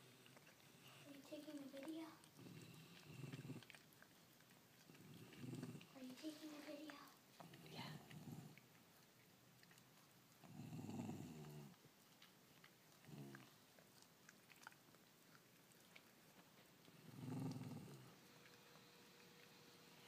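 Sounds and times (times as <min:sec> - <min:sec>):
dog licking: 0:00.0 - 0:20.0
dog growling low: 0:02.3 - 0:03.8, 0:04.8 - 0:06.0, 0:07.4 - 0:08.6, 0:10.4 - 0:11.8, 0:13.0 - 0:13.6, 0:16.9 - 0:18.2.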